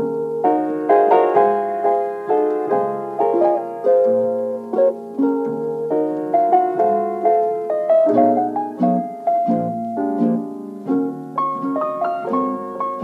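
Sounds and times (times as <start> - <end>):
gentle plucked melody: 0.0 - 13.0.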